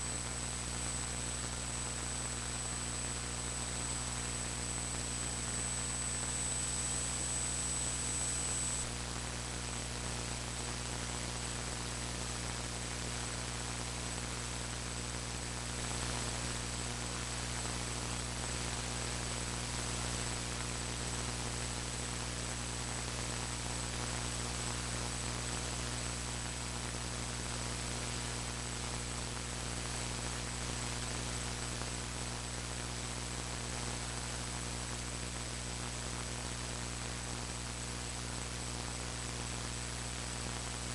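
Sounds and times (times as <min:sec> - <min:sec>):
electrical mains hum: 0:00.0 - 0:40.9
hiss and static: 0:00.0 - 0:40.9
thin high whine: 0:02.9 - 0:09.0.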